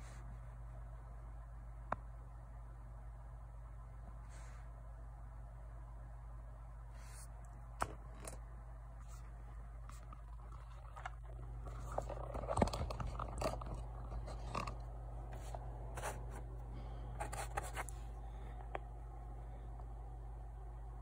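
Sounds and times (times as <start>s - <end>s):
steady low hum: 0.0s - 21.0s
small objects clicking and scraping: 10.0s - 14.9s.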